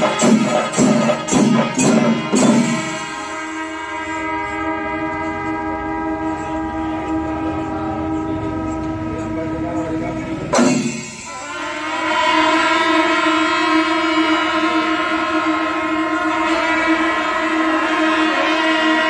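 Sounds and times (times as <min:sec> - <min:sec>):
drums beaten rapidly: 0:00.0 - 0:03.4, 0:10.5 - 0:11.6
brass horns blowing long notes: 0:00.0 - 0:09.8, 0:10.9 - 0:19.0.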